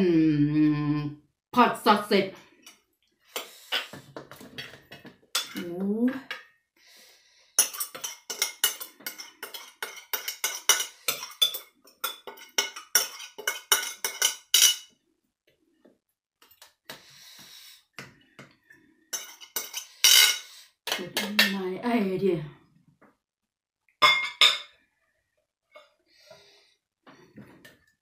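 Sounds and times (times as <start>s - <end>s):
metal spoon scraping glass bowl: 7.6s - 14.9s, 19.1s - 20.6s.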